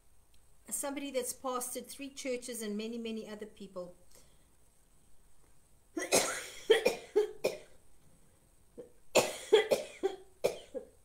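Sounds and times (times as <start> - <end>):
woman coughing: 6.0 - 7.7, 8.8 - 11.0.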